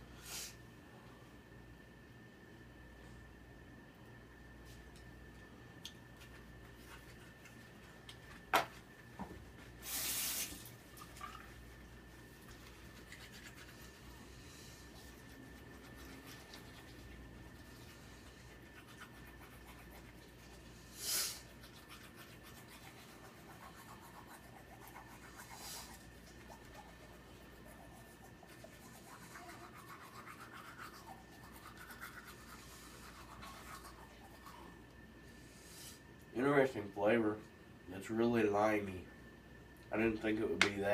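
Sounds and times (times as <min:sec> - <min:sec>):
toothbrush scrubbing teeth: 0:06.1 - 0:08.2, 0:10.5 - 0:34.9.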